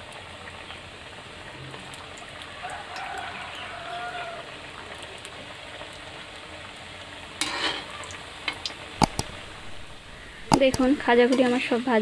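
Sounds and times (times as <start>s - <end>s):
pastries deep-frying sizzle: 0.0s - 12.0s
utensil knocking against pan: 9.0s - 9.5s.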